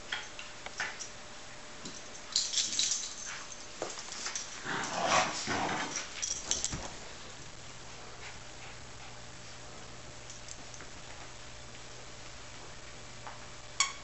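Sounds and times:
dogs scuffling: 1.8 - 11.4
dogs growling: 4.5 - 6.5.

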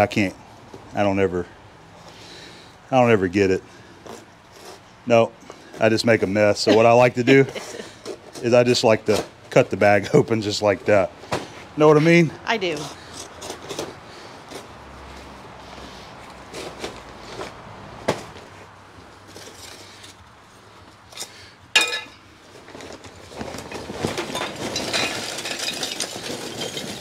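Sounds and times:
charcoal clattering into metal basket: 21.8 - 22.8, 23.4 - 27.0
paper bag rustling: 22.4 - 27.0.

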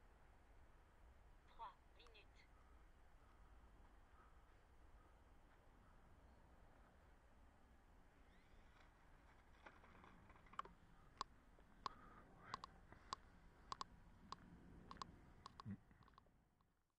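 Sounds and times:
short sharp clicks: 10.6 - 16.2.

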